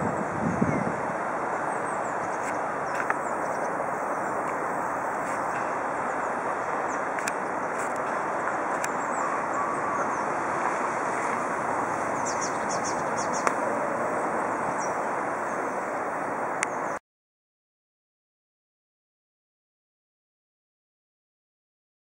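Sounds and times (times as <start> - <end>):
river water rushing: 0.0 - 17.0
small birds chirping: 0.2 - 10.5, 12.0 - 13.7.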